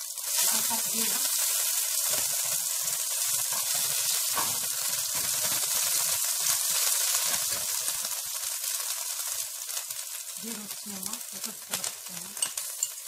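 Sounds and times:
paste sizzling in hot oil: 0.0 - 13.0
wooden spatula stirring: 0.4 - 7.8.

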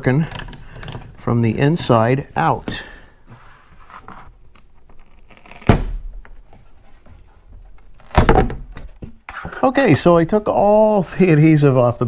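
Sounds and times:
plastic tearing free of tape: 4.5 - 6.0.

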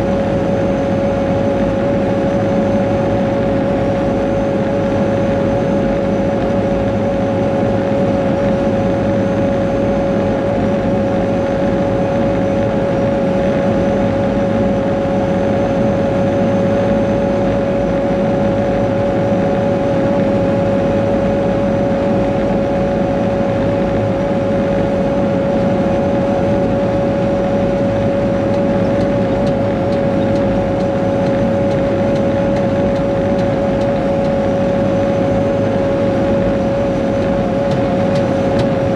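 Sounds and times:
constant whine: 0.0 - 38.9
diesel engine running: 0.0 - 38.9.

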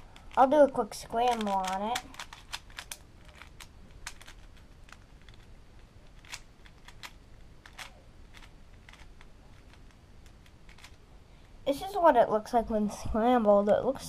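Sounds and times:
puzzle cube plastic clicks: 0.0 - 11.0.

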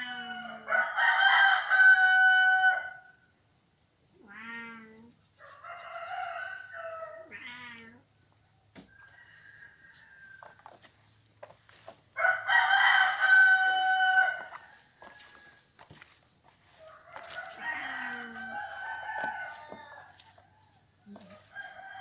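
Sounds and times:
rooster crowing: 0.0 - 3.1, 5.4 - 7.3, 8.8 - 10.9, 12.2 - 22.0.

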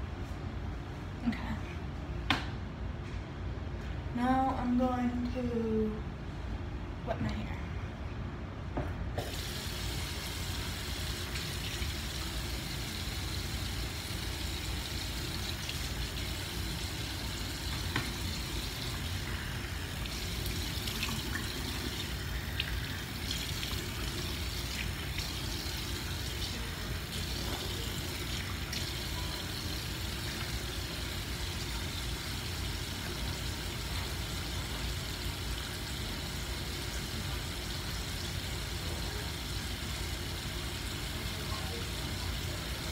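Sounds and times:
sink faucet running: 9.2 - 42.9.

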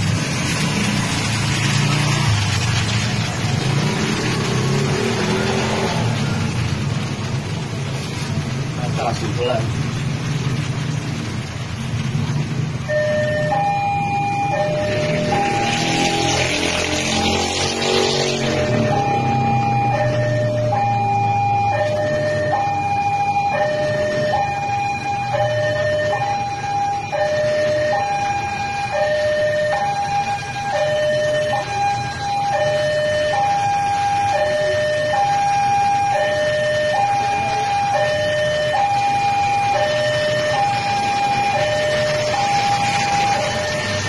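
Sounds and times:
two-tone hi-lo siren: 12.8 - 44.0.

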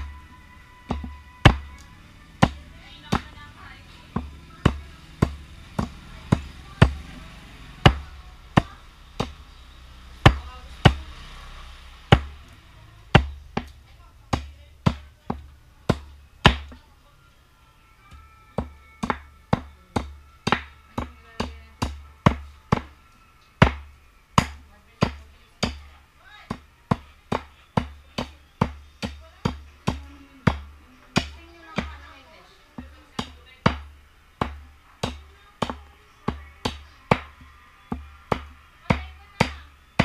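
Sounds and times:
knife chopping into wood: 23.6 - 25.8.

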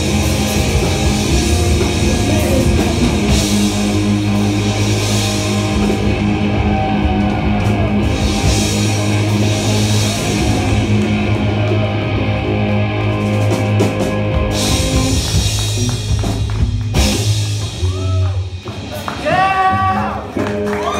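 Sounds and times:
punk rock band playing: 0.0 - 20.9.

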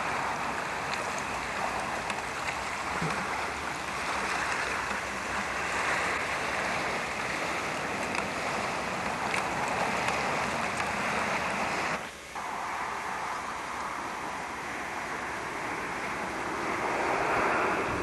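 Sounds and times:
waves lapping against rocks: 0.0 - 18.0
wind rushing: 12.4 - 18.0.

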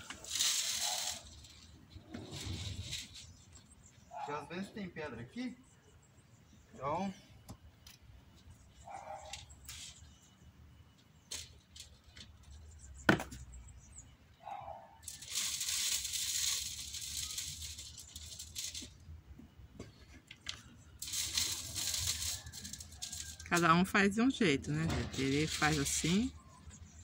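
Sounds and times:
hiss of falling grit: 0.0 - 1.5.

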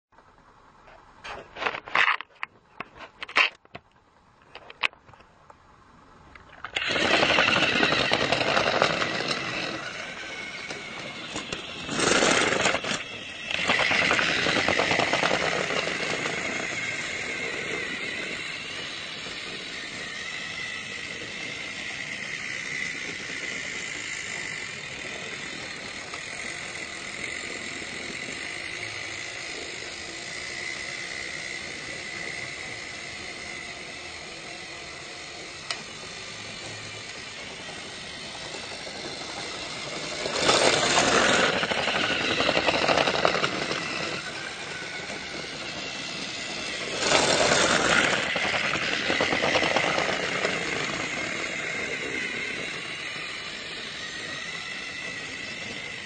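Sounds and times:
noisy surges: 0.2 - 56.0
small motor whining: 4.6 - 56.0.

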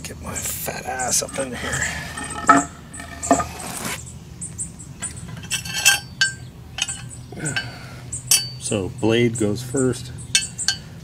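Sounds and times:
light metallic clinks and clatter: 5.0 - 8.7.

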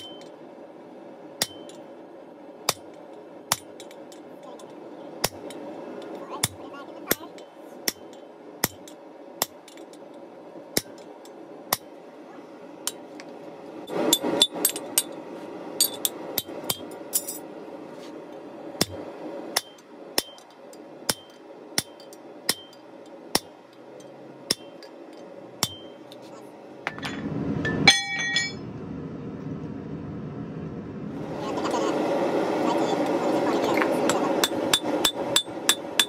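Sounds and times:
steady low hum: 0.0 - 36.0
hammer striking steel on anvil: 1.4 - 1.8, 6.4 - 9.8, 19.6 - 20.5, 21.1 - 22.8, 23.4 - 24.9, 25.6 - 26.1, 26.9 - 28.6, 34.1 - 36.0.

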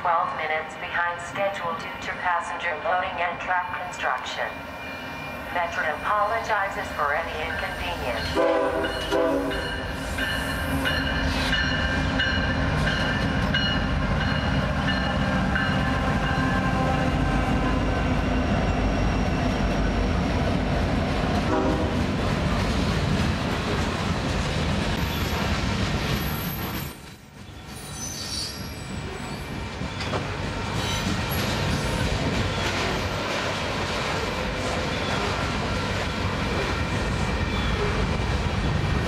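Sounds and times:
freight train rumbling past: 0.0 - 39.0
locomotive air horn: 8.4 - 9.6, 21.5 - 22.0.

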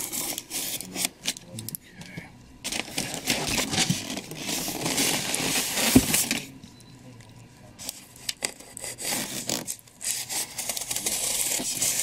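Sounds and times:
styrofoam rubbing and scraping: 3.1 - 6.3, 8.4 - 12.0.

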